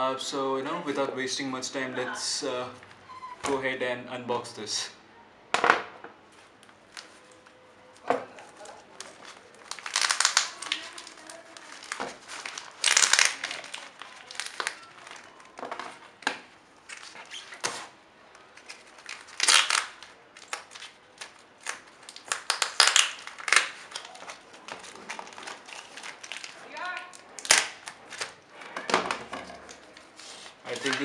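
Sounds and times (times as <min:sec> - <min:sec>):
plastic bag crinkling: 0:08.3 - 0:16.2, 0:16.8 - 0:17.6, 0:18.4 - 0:28.8, 0:29.5 - 0:31.0.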